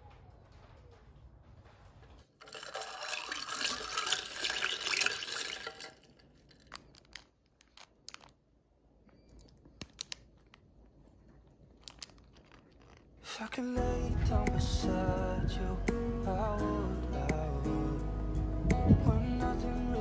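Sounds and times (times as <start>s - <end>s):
plastic wrapper crinkling: 2.4s - 13.7s.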